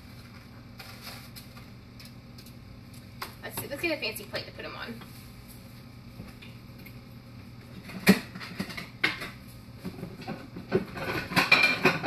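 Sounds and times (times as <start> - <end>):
dishes clattering: 7.8 - 12.0.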